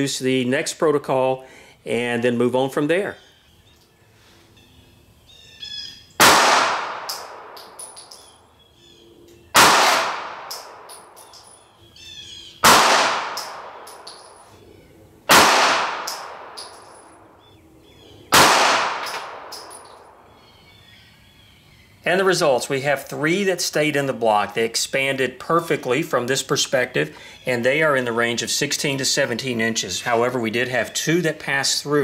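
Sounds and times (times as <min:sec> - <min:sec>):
pistol shots echoing: 0:06.2 - 0:08.2, 0:09.5 - 0:11.4, 0:12.6 - 0:14.5, 0:15.3 - 0:17.3, 0:18.3 - 0:20.2
small metal clinks: 0:07.5 - 0:08.4, 0:10.5 - 0:11.8, 0:13.4 - 0:14.6, 0:16.1 - 0:17.3, 0:19.0 - 0:20.1.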